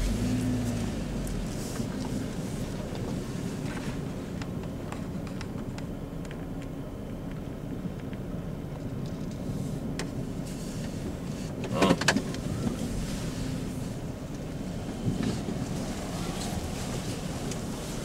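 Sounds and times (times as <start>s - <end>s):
car engine idling: 0.0s - 18.0s
clicks and rattles in cabin: 11.6s - 12.8s.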